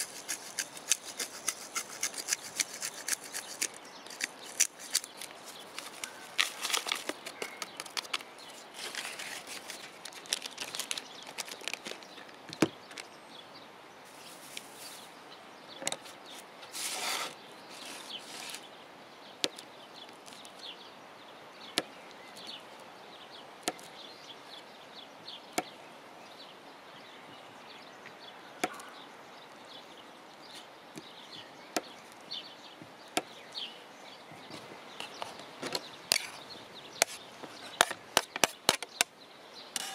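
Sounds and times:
spice packet rustling: 0:00.0 - 0:12.2.

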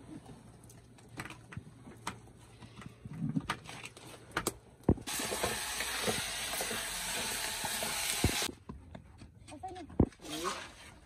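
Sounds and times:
loud steady hiss: 0:05.1 - 0:08.5.

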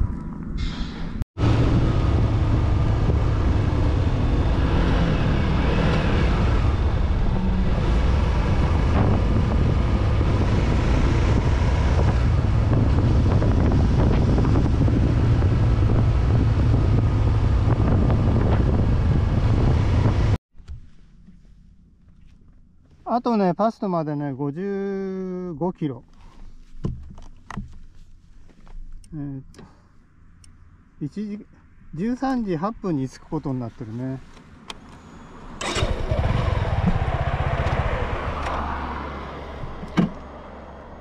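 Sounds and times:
wind noise on microphone: 0:00.0 - 0:20.4
motorcycle engine running: 0:35.6 - 0:38.5.

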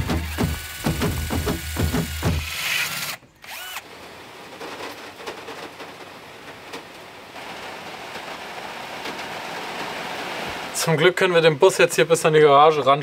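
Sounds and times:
cordless drill whining: 0:00.0 - 0:03.9
hole saw cutting plywood: 0:00.0 - 0:03.9
rain on vehicle body: 0:04.6 - 0:10.8.

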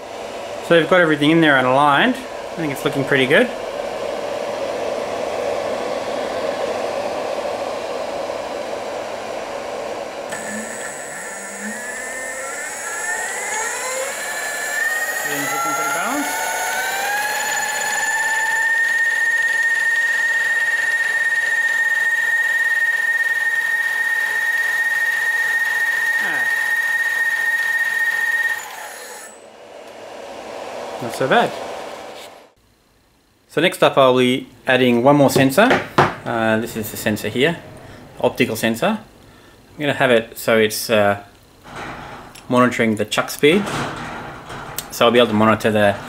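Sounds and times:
cooling fan rushing air: 0:00.0 - 0:46.0
motor high-pitched whine: 0:04.7 - 0:29.5.

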